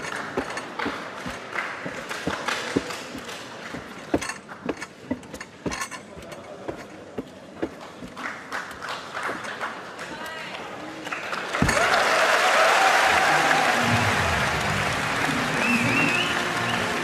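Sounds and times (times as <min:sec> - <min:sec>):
hands slapping pommel horse: 0:00.0 - 0:09.6
crowd noise in hall: 0:00.0 - 0:17.0.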